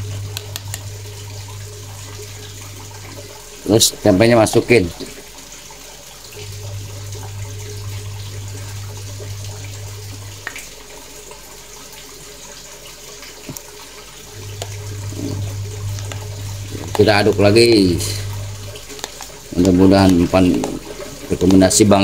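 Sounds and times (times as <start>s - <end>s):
low hum: 0.0s - 3.7s, 6.3s - 10.9s, 14.2s - 21.3s
rushing noise like running water: 0.0s - 22.0s.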